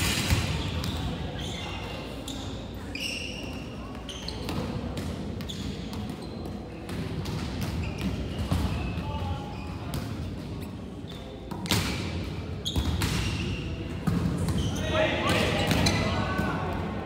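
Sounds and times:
volleyballs smacking and bouncing: 0:03.4 - 0:17.0.

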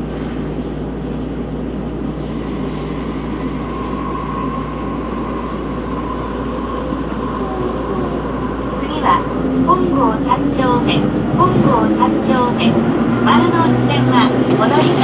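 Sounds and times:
subway train rumble: 0:00.0 - 0:15.0
thin whine: 0:01.5 - 0:10.8.

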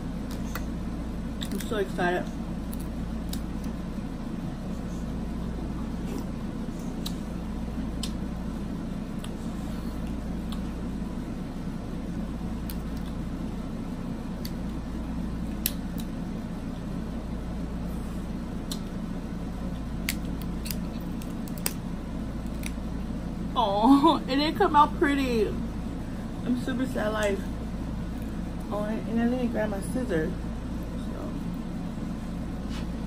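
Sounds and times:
air-conditioner hum: 0:00.0 - 0:33.0
crab shells cracking: 0:20.0 - 0:21.8.

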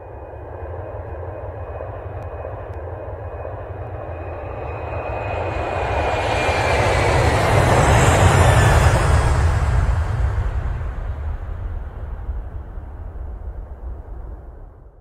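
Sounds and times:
jet engines rumbling and whining: 0:00.0 - 0:15.0.

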